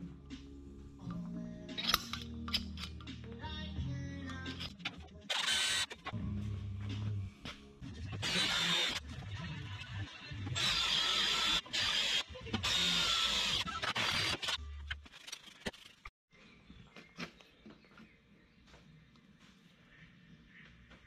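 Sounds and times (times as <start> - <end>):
hand tools clicking on metal: 1.8 - 3.1
cordless drill whining: 8.3 - 9.0, 10.6 - 14.6.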